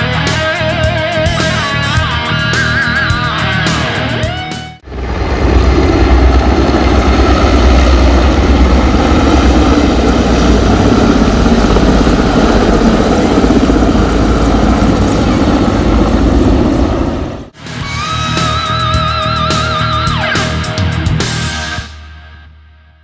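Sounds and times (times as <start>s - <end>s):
helicopters flying overhead: 0.0s - 17.6s.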